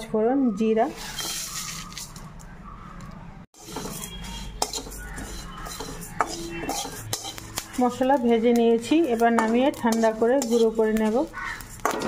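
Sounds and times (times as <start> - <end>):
metal spatula scraping a wok: 0.9 - 2.0, 3.6 - 12.0.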